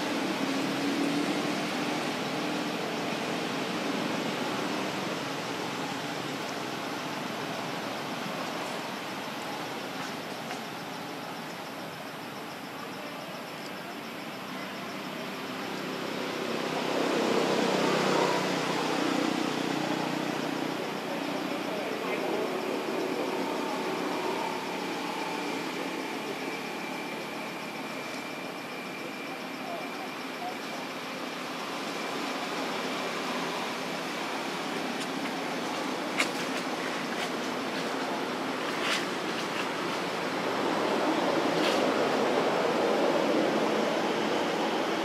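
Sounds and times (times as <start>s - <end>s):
outdoor background hiss: 0.0s - 45.0s
engine noise: 15.9s - 45.0s.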